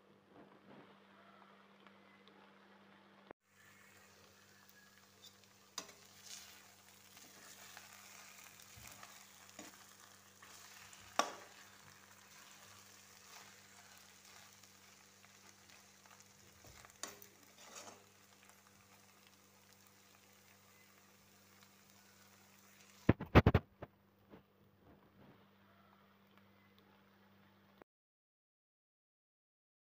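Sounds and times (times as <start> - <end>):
food sizzling in a pan: 0.8 - 23.4
spatula scraping and knocking pan: 5.2 - 14.5, 15.4 - 18.1.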